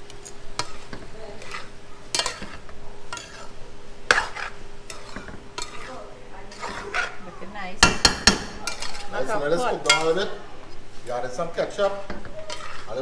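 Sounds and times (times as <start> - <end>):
light sizzle: 0.0 - 13.0
spoon scraping and knocking pot: 0.6 - 7.2, 7.8 - 9.2, 11.8 - 13.0.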